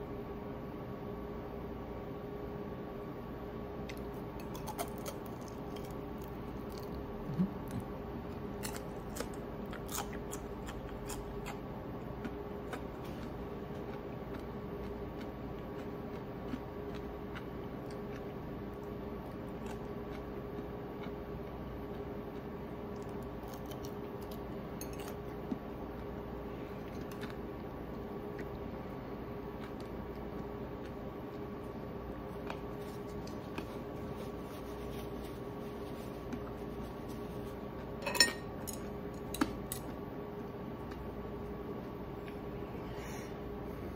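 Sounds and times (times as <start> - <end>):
steady background hum: 0.0 - 43.9
chewing: 3.9 - 28.6, 29.5 - 38.0.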